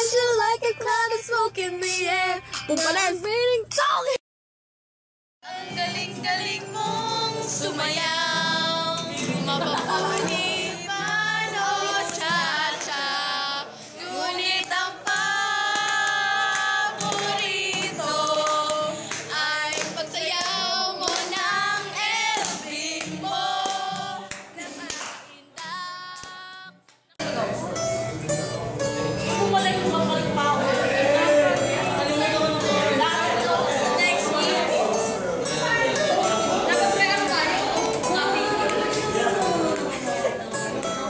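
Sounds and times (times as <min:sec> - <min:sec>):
girls singing loudly: 0:05.4 - 0:26.7
hand clapping: 0:14.5 - 0:27.1.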